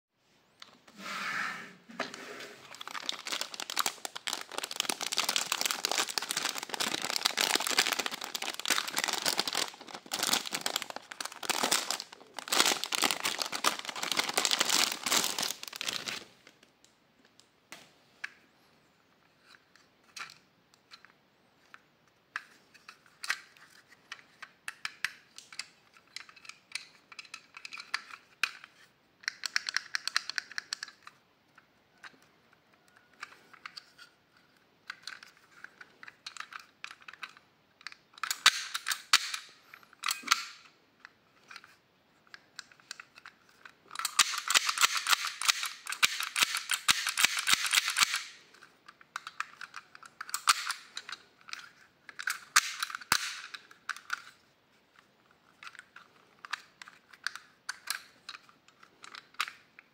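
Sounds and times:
plastic bag crinkling: 2.6s - 16.6s
plastic toy clicks and taps: 29.2s - 31.1s.

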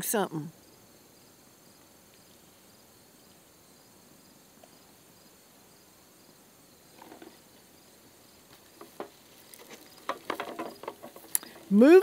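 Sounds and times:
insects chirping: 0.0s - 12.0s
faint rustle: 1.2s - 3.9s, 6.8s - 12.0s.

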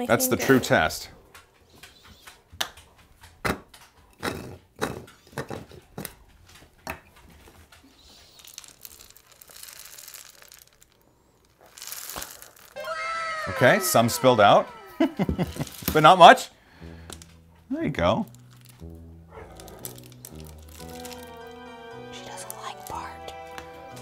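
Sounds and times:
dry pet food pouring into dish: 8.1s - 12.9s, 15.2s - 16.2s, 19.6s - 21.5s.

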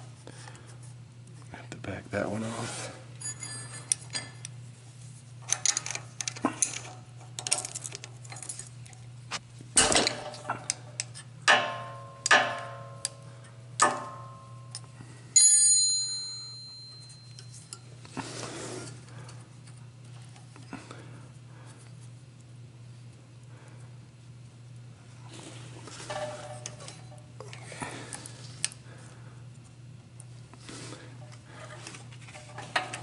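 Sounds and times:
high metallic ring: 13.8s - 14.8s, 15.4s - 17.9s.

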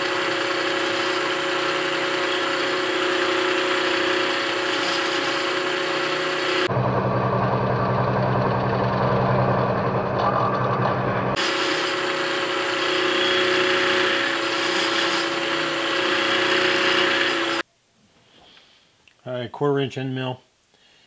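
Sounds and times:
milling machine cutting metal: 0.0s - 6.7s, 10.2s - 17.6s.

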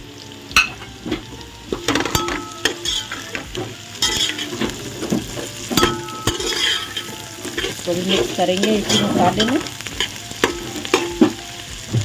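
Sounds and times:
vegetables sizzling in oil: 0.0s - 12.0s
metal spoon scraping a pot: 1.8s - 11.4s.

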